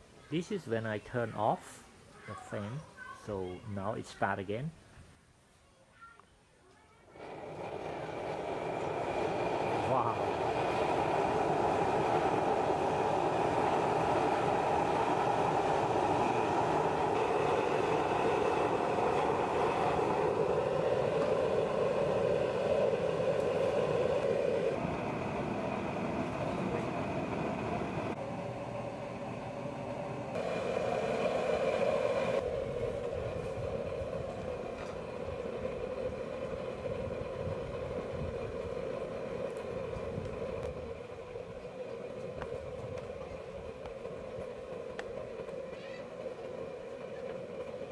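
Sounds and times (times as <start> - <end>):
oil burner stove roaring: 7.2 - 47.9.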